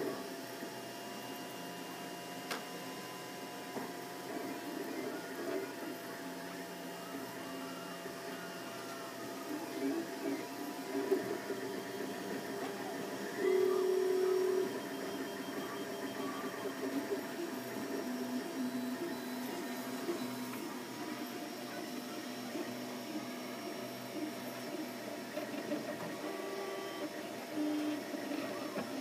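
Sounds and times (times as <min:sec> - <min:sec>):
cooling fans humming: 0:00.0 - 0:29.0.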